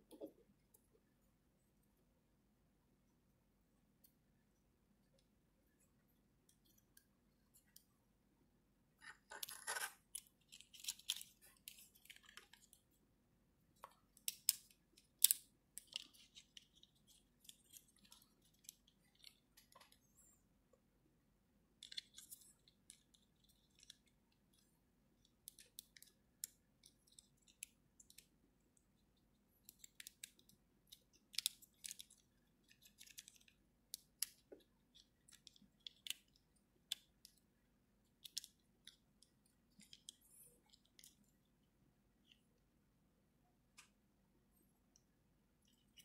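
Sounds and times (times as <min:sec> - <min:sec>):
plastic parts clicking and scraping: 0:09.0 - 0:12.9, 0:13.8 - 0:20.2, 0:21.8 - 0:41.3.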